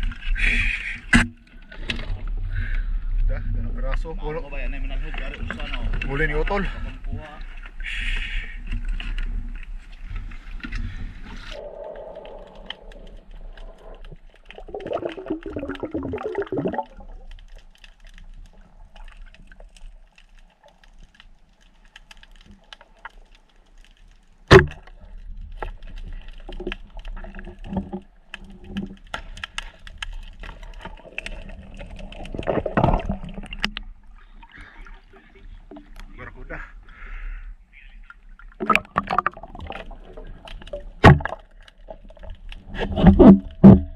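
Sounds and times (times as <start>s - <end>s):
underwater gurgling and sloshing: 0.0s - 43.9s
water splashing: 7.4s - 23.3s, 24.4s - 36.2s, 38.0s - 43.9s.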